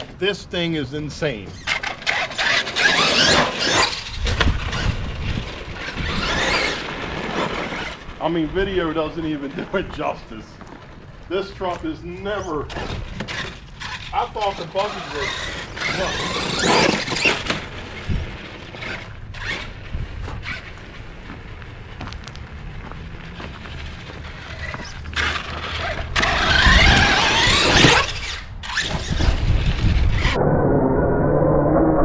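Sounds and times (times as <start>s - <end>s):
tyres on gravel: 0.0s - 30.0s.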